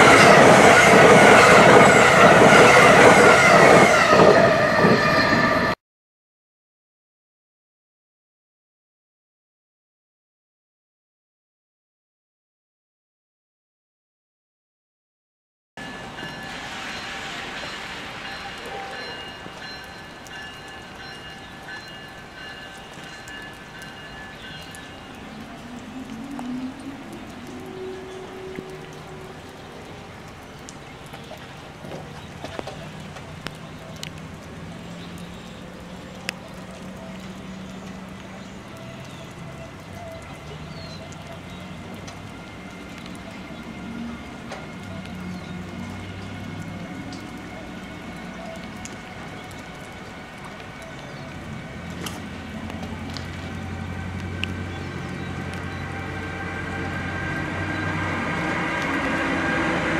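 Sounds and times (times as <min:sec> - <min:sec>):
rain falling: 0:00.0 - 0:04.3, 0:15.8 - 0:59.9
distant train approaching: 0:00.0 - 0:05.8, 0:15.8 - 0:59.9
sharp drips: 0:15.8 - 0:59.0.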